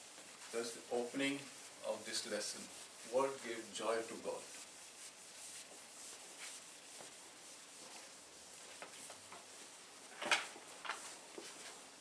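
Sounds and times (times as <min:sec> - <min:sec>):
eraser rubbing on blackboard: 0:00.0 - 0:09.8.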